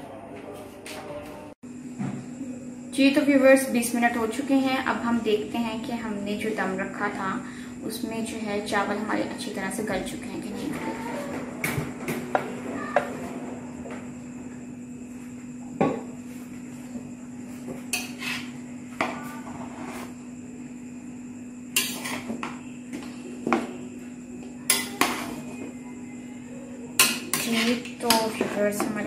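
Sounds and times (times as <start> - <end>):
metal spoon scraping rice: 18.0 - 18.5, 21.8 - 22.3, 27.0 - 28.2.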